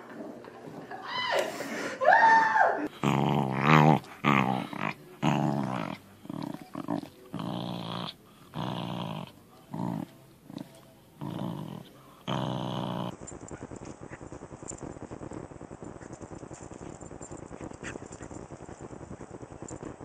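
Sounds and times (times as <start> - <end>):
dog growling: 2.8 - 13.2.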